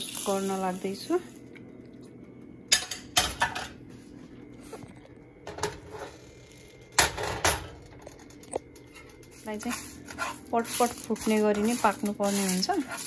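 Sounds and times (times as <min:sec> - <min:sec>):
utensil scraping frying pan: 0:09.0 - 0:13.0.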